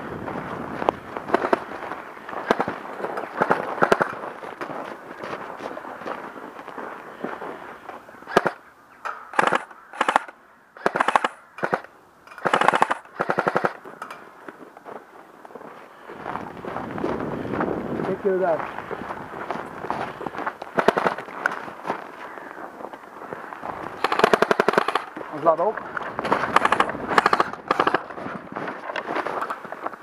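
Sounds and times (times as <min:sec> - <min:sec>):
airsoft automatic fire bursts: 0:02.4 - 0:04.2, 0:08.3 - 0:08.6, 0:09.3 - 0:13.8, 0:20.7 - 0:21.2, 0:24.0 - 0:25.1, 0:26.2 - 0:28.2.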